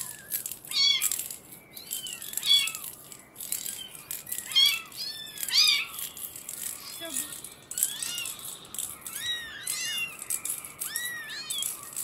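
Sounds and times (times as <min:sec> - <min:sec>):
toy rattle shaking: 0:00.0 - 0:12.0
kittens mewing: 0:03.8 - 0:06.1, 0:06.8 - 0:12.0.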